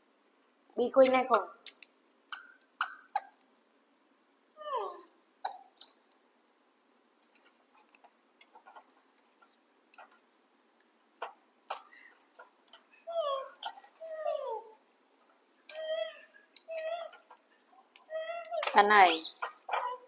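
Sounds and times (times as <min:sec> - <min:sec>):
young macaque squeaky calls: 0:05.7 - 0:06.2, 0:19.1 - 0:20.0.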